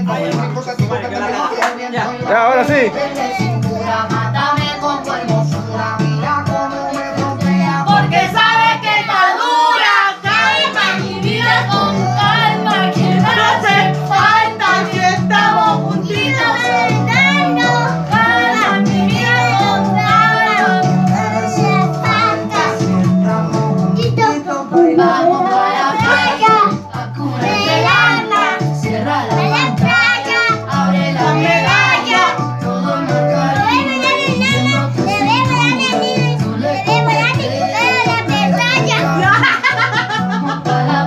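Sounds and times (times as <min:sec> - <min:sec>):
reggaeton backing music: 0:00.0 - 0:41.0
girl singing: 0:07.8 - 0:22.8, 0:24.0 - 0:32.4, 0:33.5 - 0:39.6.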